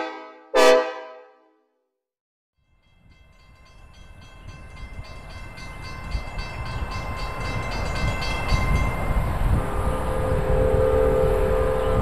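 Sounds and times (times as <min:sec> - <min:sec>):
train rumble: 0:02.8 - 0:12.0.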